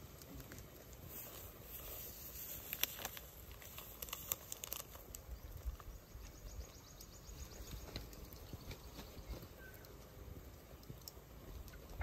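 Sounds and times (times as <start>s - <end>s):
plastic sachet crinkling: 1.2s - 5.9s.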